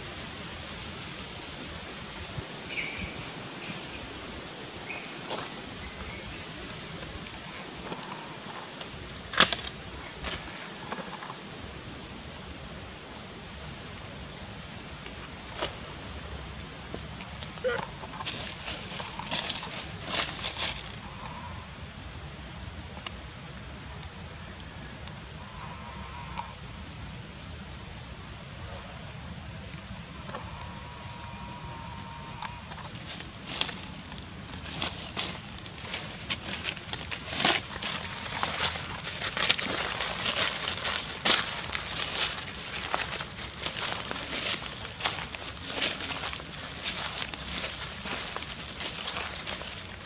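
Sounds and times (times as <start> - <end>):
forest background hiss: 0.0 - 50.0
dry rustling and crackling: 4.8 - 11.5, 15.0 - 21.4, 29.6 - 50.0.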